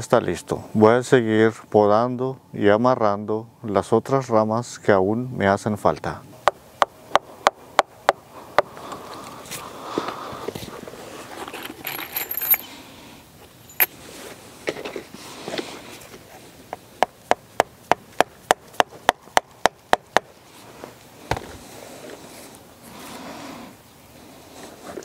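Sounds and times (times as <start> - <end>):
handling noise: 10.6 - 12.8, 13.4 - 15.0.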